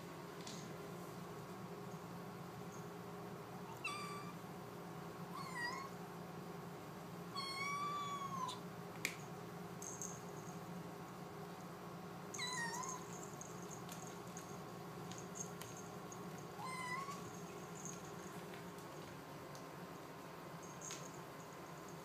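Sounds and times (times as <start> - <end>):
kitten meowing: 3.7 - 4.4, 5.4 - 5.9, 7.4 - 8.6, 12.4 - 13.0, 16.6 - 17.2.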